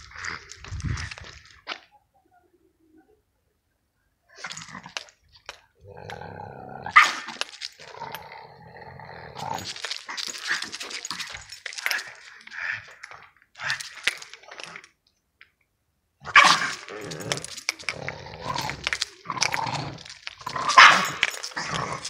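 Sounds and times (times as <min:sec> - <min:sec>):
dog growling and grunting: 0:05.8 - 0:13.0, 0:16.2 - 0:22.0.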